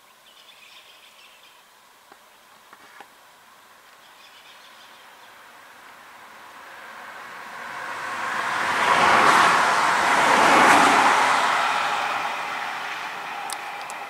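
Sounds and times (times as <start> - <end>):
faint bird chirps: 0.0 - 2.5, 4.0 - 5.4
car approaching on road: 5.0 - 14.0.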